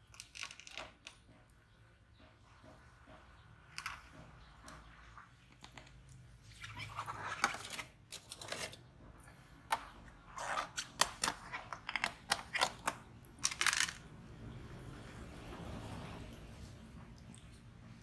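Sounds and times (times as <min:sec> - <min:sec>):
plastic tubs clicking and crinkling: 0:00.0 - 0:01.6, 0:03.6 - 0:09.0, 0:09.6 - 0:14.2.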